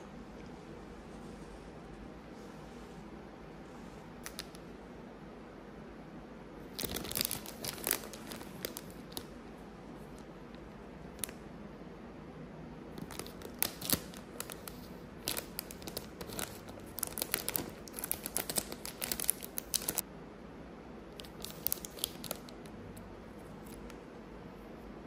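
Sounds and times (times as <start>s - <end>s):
plastic snack packet crinkling: 6.7s - 9.3s, 13.0s - 20.0s, 21.2s - 22.6s.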